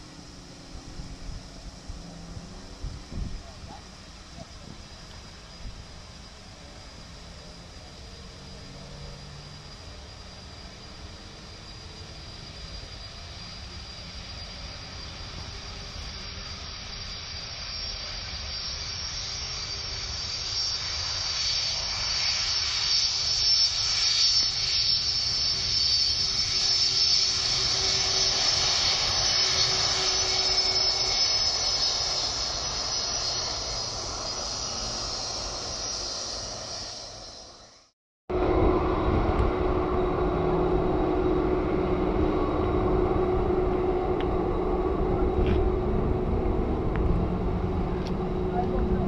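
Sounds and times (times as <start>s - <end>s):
jet engines roaring and whining: 0.0s - 49.0s.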